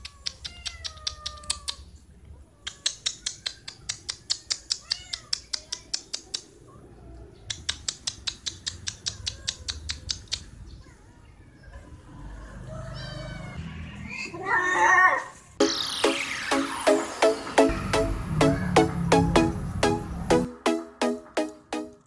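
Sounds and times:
cat meowing: 0.0 - 3.9, 4.8 - 5.7.

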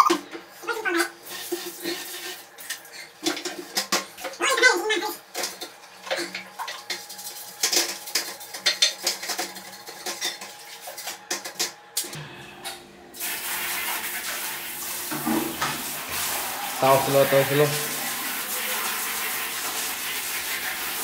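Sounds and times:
toilet brush scrubbing bowl: 0.0 - 11.8, 13.2 - 21.0
water spray hissing: 13.2 - 21.0.

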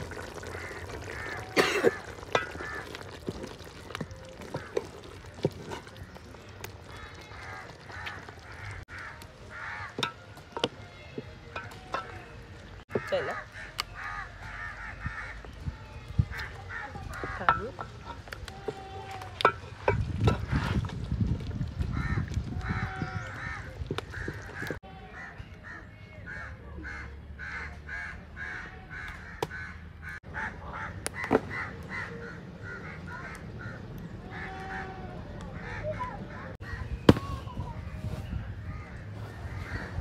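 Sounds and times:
birds calling: 0.0 - 20.6, 21.9 - 40.0
wooden spoon knocking metal pot: 1.6 - 7.0, 17.1 - 18.8.

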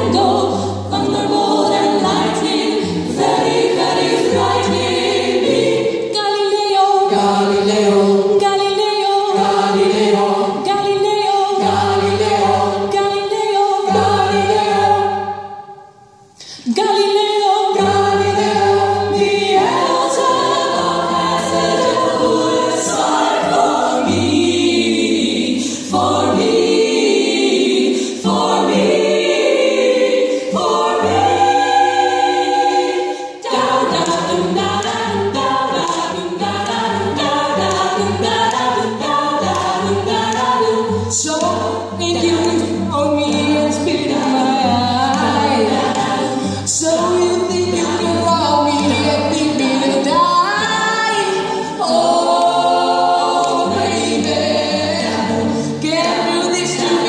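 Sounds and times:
women singing in harmony: 0.0 - 57.0.

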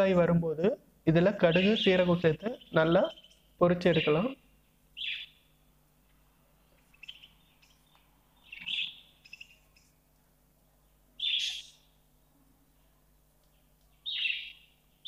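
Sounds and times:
bird calling: 1.4 - 4.4, 5.0 - 5.4, 6.8 - 10.0, 11.2 - 11.9, 14.0 - 14.8.

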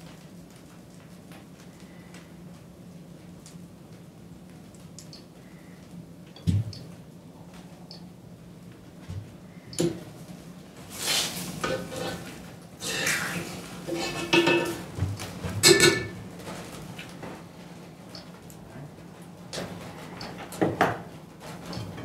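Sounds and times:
metal spoon clinking on pots: 14.0 - 14.9, 15.6 - 16.2.

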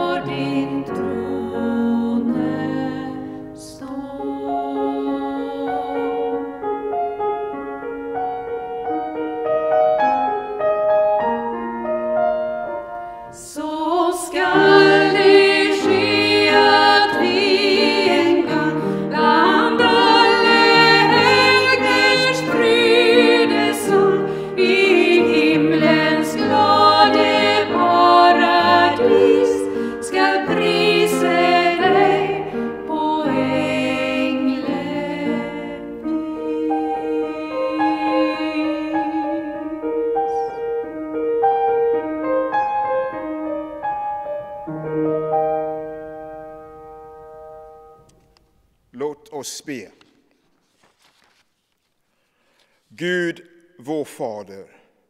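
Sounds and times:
upright piano: 0.0 - 48.3
woman singing with vibrato: 13.4 - 40.4.

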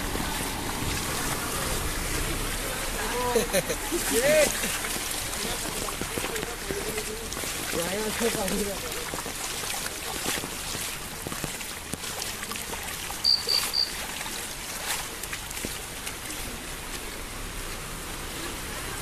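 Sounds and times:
heavy rain: 0.0 - 19.0
rushing floodwater: 0.0 - 19.0
short high beeps: 13.2 - 14.0.

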